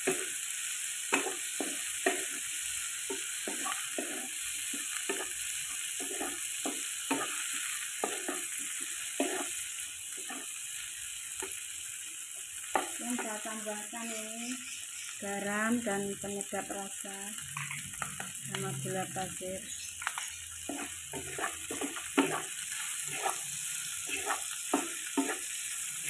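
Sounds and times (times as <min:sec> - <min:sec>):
vegetables sizzling in hot oil: 0:00.0 - 0:26.0
spatula scraping wok: 0:01.1 - 0:10.6, 0:17.4 - 0:26.0.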